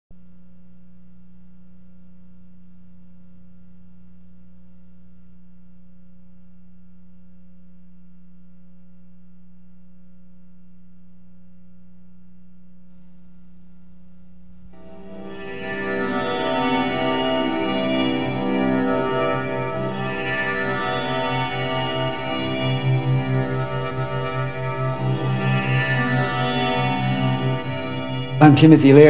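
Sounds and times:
steady low-pitched hum: 0:00.1 - 0:16.0.

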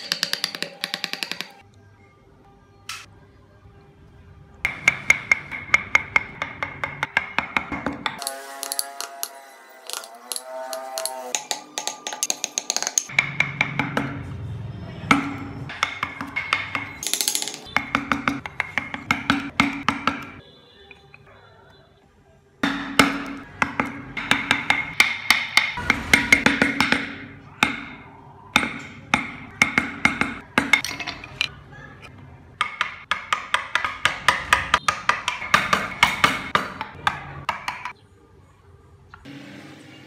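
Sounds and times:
mallet tapping on chisel: 0:00.0 - 0:01.6, 0:04.7 - 0:14.2, 0:15.1 - 0:20.4, 0:22.6 - 0:31.5, 0:32.6 - 0:38.0.

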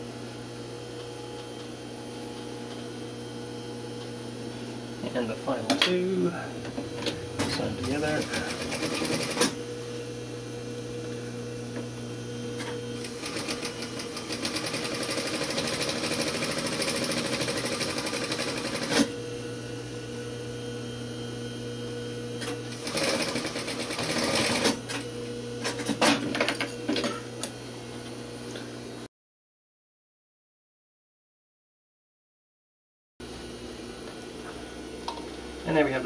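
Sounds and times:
sewing machine motor hum: 0:06.4 - 0:09.8, 0:11.8 - 0:20.1, 0:22.2 - 0:26.4
sewing machine stitching: 0:07.4 - 0:09.6, 0:13.0 - 0:19.1, 0:22.7 - 0:24.8.

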